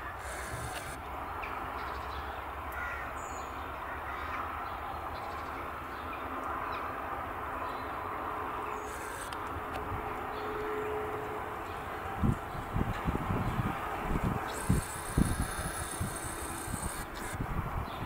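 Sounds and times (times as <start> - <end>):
birds calling: 0.0 - 1.1, 8.6 - 9.8, 11.7 - 18.0.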